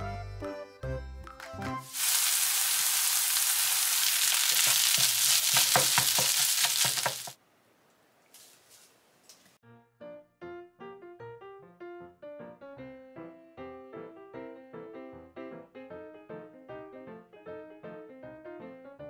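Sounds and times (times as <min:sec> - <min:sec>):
music: 0:00.0 - 0:02.0, 0:09.6 - 0:19.0
fried rice sizzling in a pan: 0:01.9 - 0:07.4
spatula scraping and tapping pan: 0:04.3 - 0:07.4.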